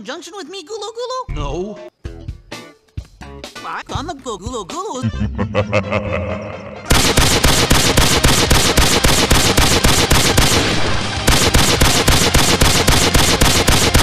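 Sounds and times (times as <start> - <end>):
rapid automatic gunfire: 6.9 - 14.0.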